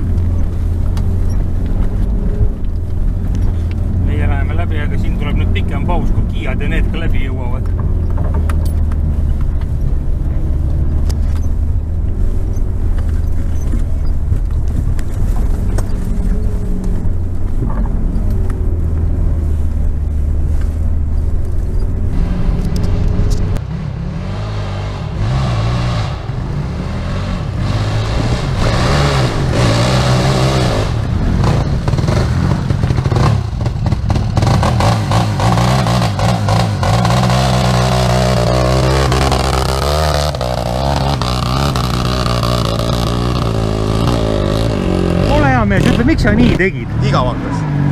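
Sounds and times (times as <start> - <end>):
car engine running inside cab: 0.0 - 23.8
quad bike engine revving: 22.1 - 47.9.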